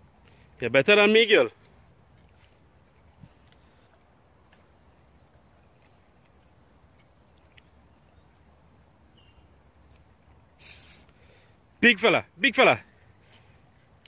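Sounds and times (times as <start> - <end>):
faint riverside ambience: 0.0 - 14.0.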